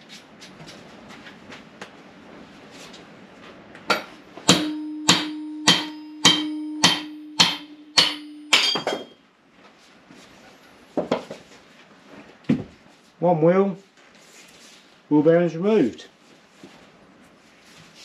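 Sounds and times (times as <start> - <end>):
hammer striking metal shaft: 3.9 - 9.2
metallic ringing tone: 4.0 - 9.2.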